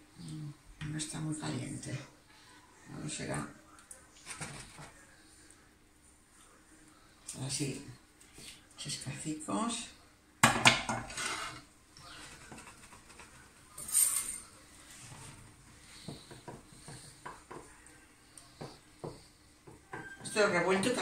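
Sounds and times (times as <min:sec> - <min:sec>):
cookware scraping: 0:10.6 - 0:17.7
wooden spatula stirring in pan: 0:11.0 - 0:13.7, 0:14.8 - 0:21.0
cookware clinking: 0:19.8 - 0:20.5.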